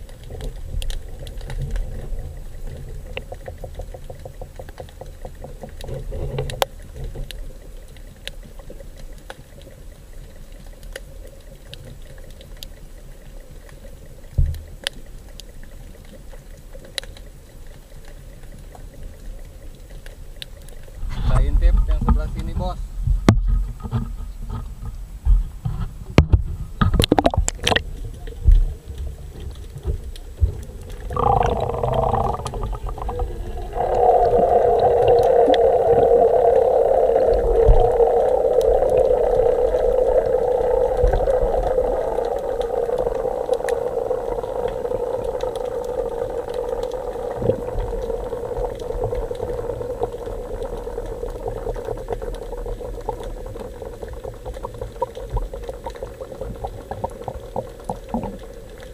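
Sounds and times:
steady underwater hum: 0:00.0 - 0:58.9
muffled underwater noise: 0:27.0 - 0:58.9.

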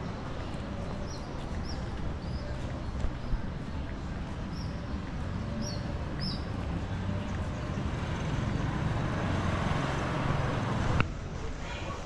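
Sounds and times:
low rumble of road traffic: 0:00.0 - 0:12.0.

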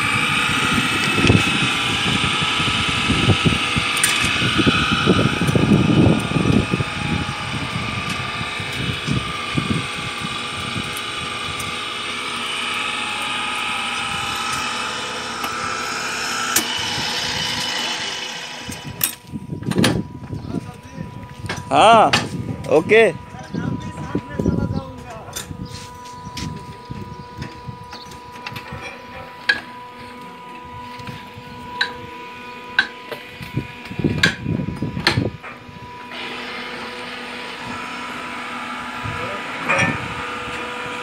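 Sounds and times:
low rattling and scraping: 0:00.0 - 0:41.0
threading machine motor whine: 0:00.0 - 0:41.0.

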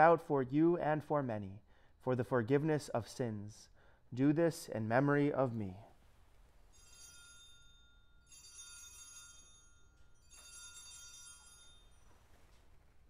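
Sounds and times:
faint high altar bells: 0:06.6 - 0:12.9.

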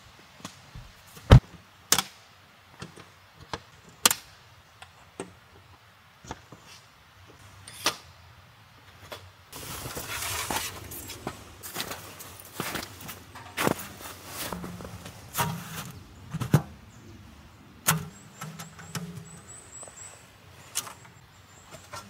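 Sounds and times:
rustling: 0:09.6 - 0:16.8.

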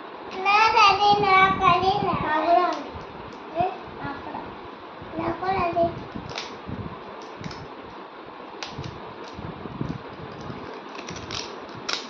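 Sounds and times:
plastic wrapper crinkling: 0:10.3 - 0:12.0.

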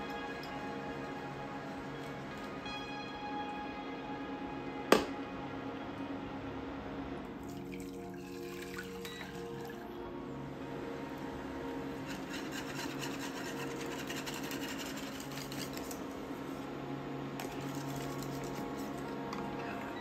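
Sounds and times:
whisk scraping a metal saucepan: 0:12.0 - 0:16.0.

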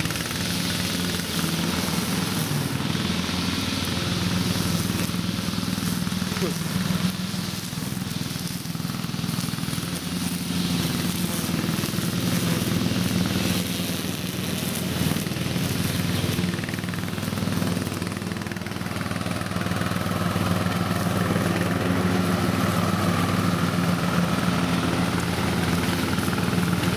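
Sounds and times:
lawn mower engine running: 0:00.0 - 0:26.9.

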